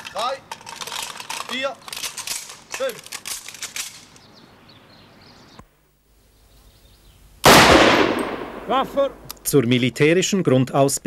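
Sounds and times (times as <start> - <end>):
rifle shot with echo: 7.4 - 9.3.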